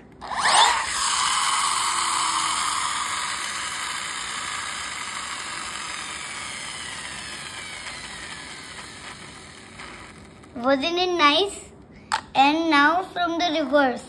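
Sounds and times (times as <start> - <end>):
toy car flywheel whirring: 0.0 - 10.6.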